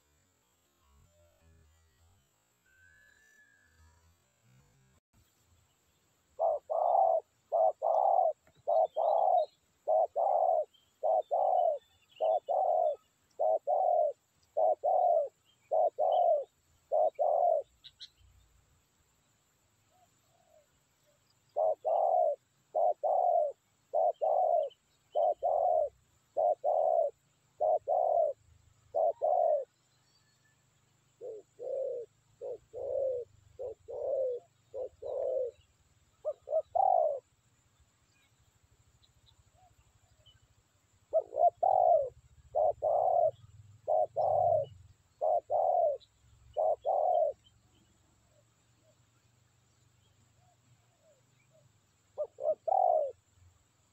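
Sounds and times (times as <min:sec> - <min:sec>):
dove cooing: 0:06.4 - 0:18.1, 0:21.5 - 0:29.8, 0:31.1 - 0:37.3, 0:41.0 - 0:47.5, 0:50.4 - 0:53.3.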